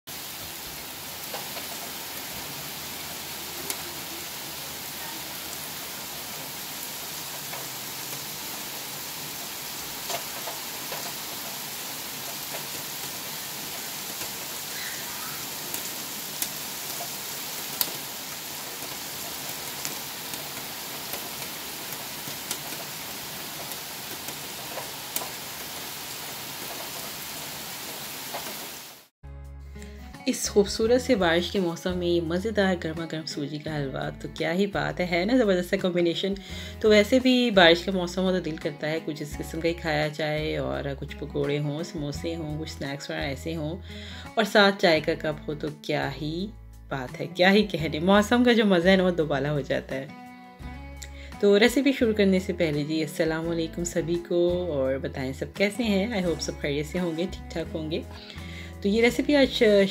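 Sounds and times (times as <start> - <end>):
heavy rain on grass and pavement: 0.0 - 29.1.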